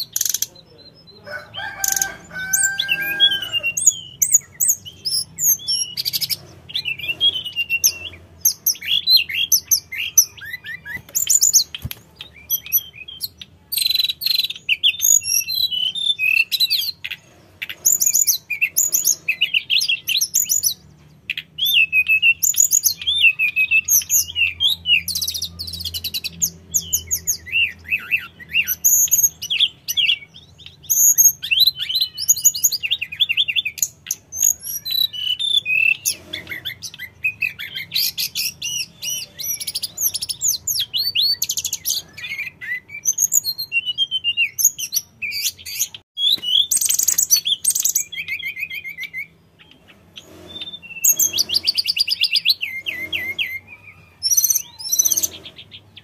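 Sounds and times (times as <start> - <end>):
flycatcher singing whistles and trills: 0.0 - 56.0.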